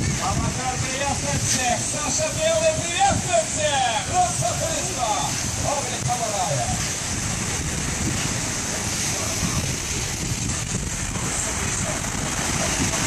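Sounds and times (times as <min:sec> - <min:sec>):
small waves breaking on sand: 0:00.0 - 0:13.0
wind buffeting microphone: 0:00.0 - 0:13.0.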